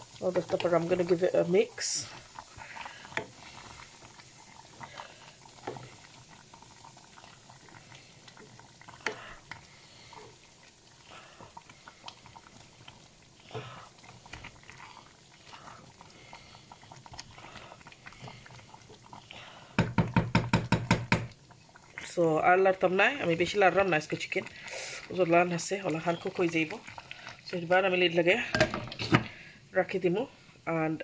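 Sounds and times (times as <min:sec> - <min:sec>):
curry simmering in a pot: 0:00.0 - 0:31.0
wooden spoon knocking and scraping pot: 0:19.8 - 0:21.4.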